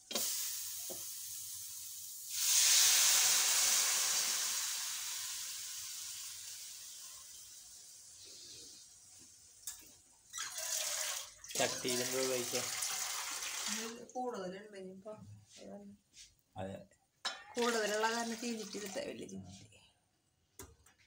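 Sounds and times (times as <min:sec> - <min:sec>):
steam hissing: 0:00.0 - 0:08.9
spices sizzling in a pan: 0:00.0 - 0:09.5.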